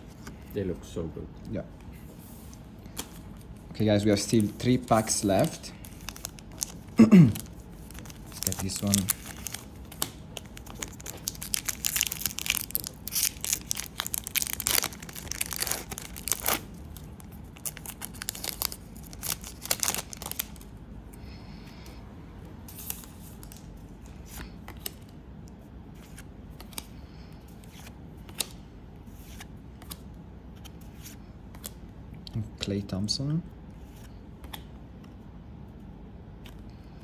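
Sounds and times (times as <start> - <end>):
cards being handled: 2.4 - 16.7, 26.0 - 31.8
card pack wrapper tearing: 5.9 - 20.6.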